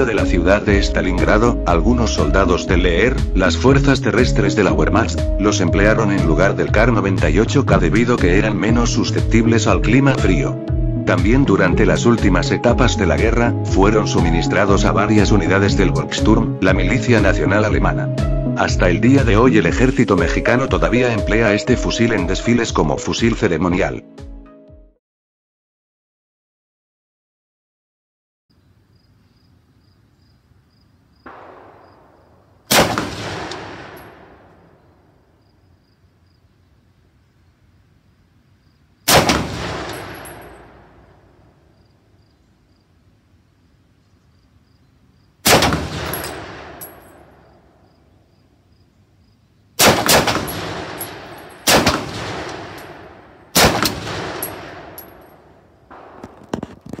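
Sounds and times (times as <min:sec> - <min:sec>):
insects chirping: 0:28.5 - 0:32.7, 0:33.7 - 0:57.0
rifle shots echoing: 0:31.3 - 0:35.1, 0:39.1 - 0:41.6, 0:45.4 - 0:47.8, 0:49.8 - 0:56.8.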